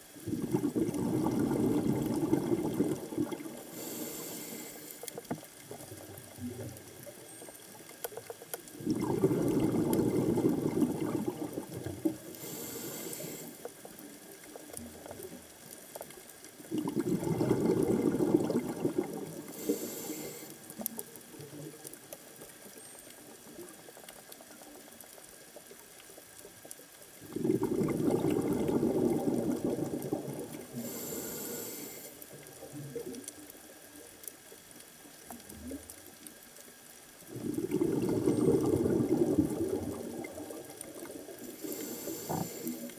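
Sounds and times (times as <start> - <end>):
exhaled bubbles underwater: 0.0 - 7.3, 8.3 - 22.4, 27.1 - 36.4, 37.3 - 42.9
regulator inhalation hiss: 3.7 - 5.2, 12.4 - 13.7, 19.4 - 20.7, 30.7 - 32.3, 41.4 - 42.9.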